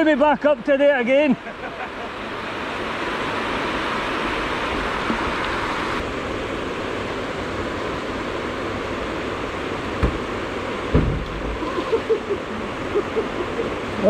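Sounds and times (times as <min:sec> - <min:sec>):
water rushing over weir: 0:00.0 - 0:14.0
low thump: 0:10.0 - 0:10.3, 0:10.9 - 0:11.6.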